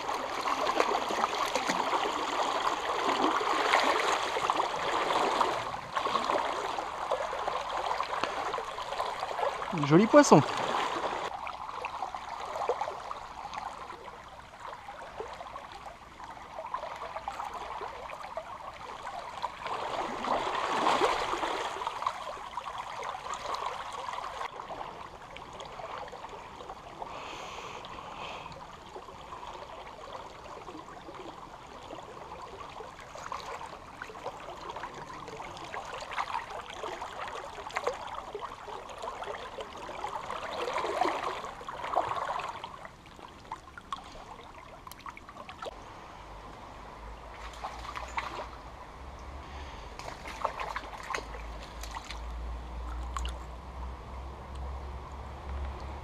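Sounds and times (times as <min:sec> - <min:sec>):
stream babbling over stones: 0:00.0 - 0:45.8, 0:46.5 - 0:56.0.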